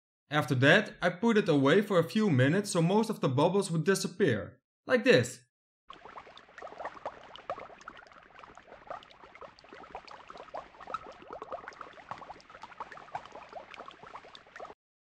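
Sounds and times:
resin bubbles popping: 0:05.9 - 0:14.8.

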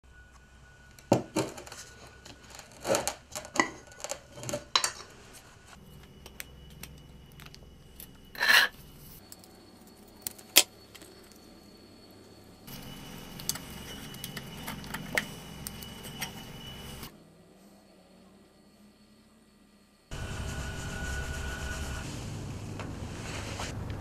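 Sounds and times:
glass jar and tin lid clinking: 0:01.2 - 0:05.1
scrape on workbench: 0:08.4 - 0:08.8, 0:23.0 - 0:23.7.

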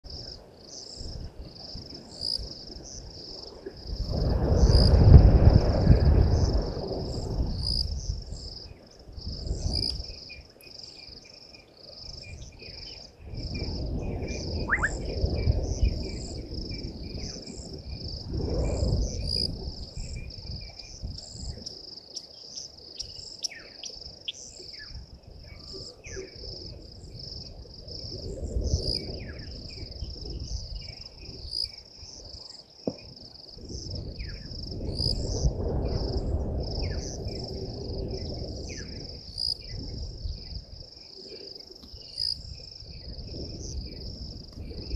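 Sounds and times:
crickets chirping: 0:00.0 - 0:44.9
wind rumbling on microphone: 0:00.0 - 0:44.9
low insect trill: 0:00.1 - 0:44.9
short bird calls: 0:14.6 - 0:15.2.

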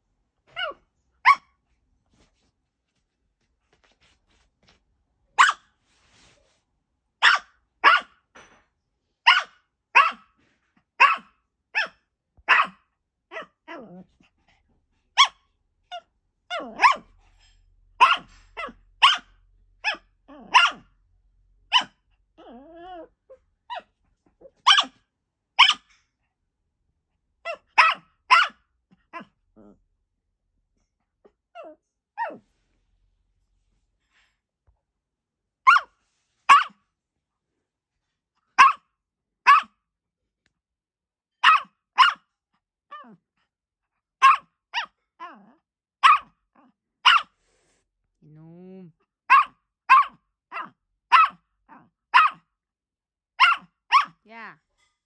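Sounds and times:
small dog barking: 0:00.5 - 0:01.6, 0:05.4 - 0:05.7, 0:07.2 - 0:08.2, 0:09.2 - 0:10.4, 0:11.0 - 0:13.8, 0:15.2 - 0:21.0, 0:21.7 - 0:22.0, 0:23.7 - 0:25.0, 0:25.6 - 0:26.0, 0:27.4 - 0:29.8, 0:35.6 - 0:36.8, 0:38.6 - 0:39.8, 0:41.4 - 0:42.3, 0:44.2 - 0:47.3, 0:49.3 - 0:52.5, 0:53.4 - 0:54.2
dog growling: 0:22.4 - 0:23.1, 0:29.2 - 0:29.8.

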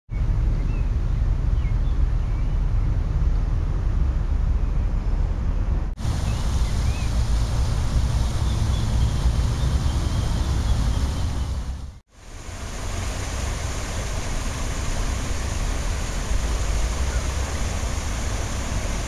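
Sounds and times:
wind rumble on microphone: 0:00.1 - 0:19.0
small waterfall pouring: 0:06.0 - 0:19.0
water splashing onto pond: 0:06.0 - 0:19.0.

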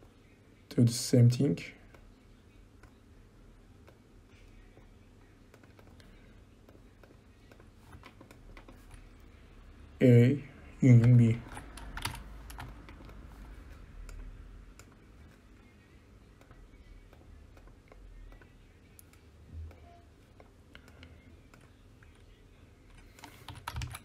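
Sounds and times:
low room hum: 0:00.0 - 0:24.0
computer mouse and keyboard clicks: 0:05.5 - 0:09.2, 0:11.0 - 0:15.0, 0:22.9 - 0:24.0.

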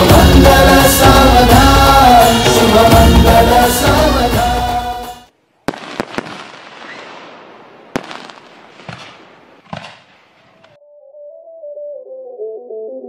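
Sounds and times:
music: 0:00.0 - 0:05.3, 0:10.8 - 0:13.0
fireworks bangs and crackling: 0:05.7 - 0:10.8.

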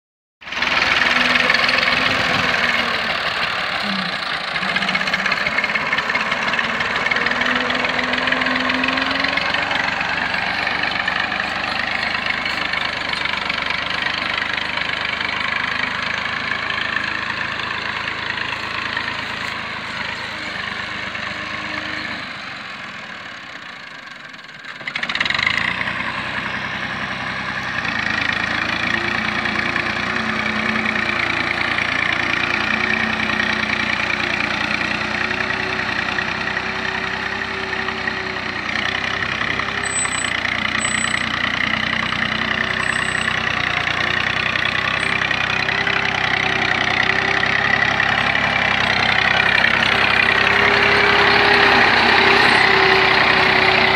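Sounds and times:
tractor diesel engine running: 0:00.4 - 0:53.9.

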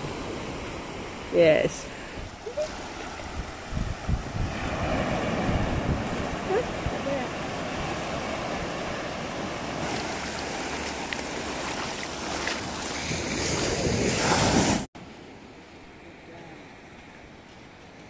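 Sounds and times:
surf washing over sand: 0:00.0 - 0:18.0
wind on microphone: 0:01.4 - 0:14.9.

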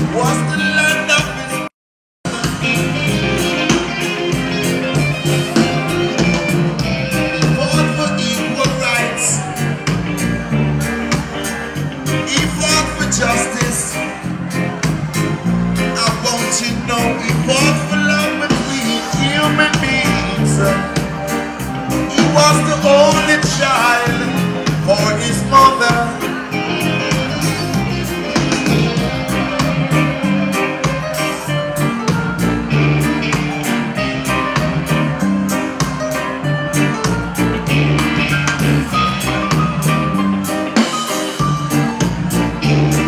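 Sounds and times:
man singing into a microphone: 0:00.0 - 0:01.7, 0:07.3 - 0:09.5, 0:12.2 - 0:14.1, 0:16.0 - 0:21.0, 0:22.1 - 0:26.3
reggae band playing: 0:00.0 - 0:43.0.

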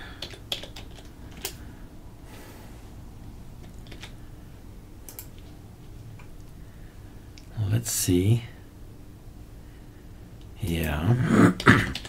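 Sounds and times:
computer keyboard keystrokes: 0:00.0 - 0:01.6, 0:03.6 - 0:04.2, 0:05.1 - 0:05.5, 0:11.6 - 0:12.0
faint low hum: 0:00.0 - 0:12.0.

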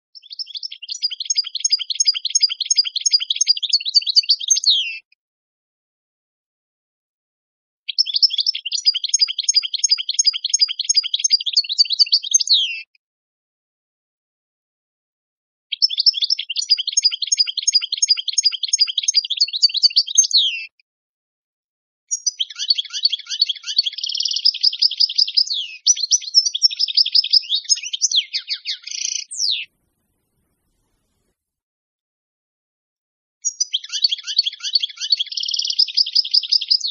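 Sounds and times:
bird twittering chirps and trills: 0:00.2 - 0:05.0, 0:07.9 - 0:12.9, 0:15.7 - 0:20.7, 0:22.1 - 0:30.9, 0:33.4 - 0:36.9.

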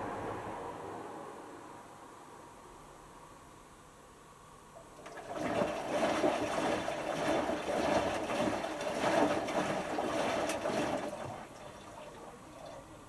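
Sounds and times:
water sloshing in washing machine: 0:04.8 - 0:13.0.

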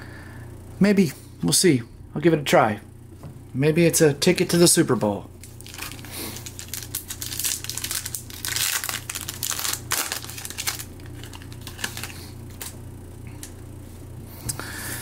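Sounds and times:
plastic foil wrapper crinkling: 0:05.4 - 0:12.8.

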